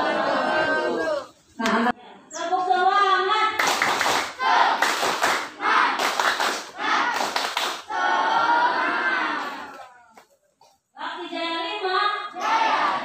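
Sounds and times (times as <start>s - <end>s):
children singing and chanting: 0.0s - 1.9s, 7.9s - 9.8s, 12.2s - 13.0s
clapping: 3.6s - 7.9s
children shouting syllables: 7.9s - 10.2s, 12.4s - 13.0s.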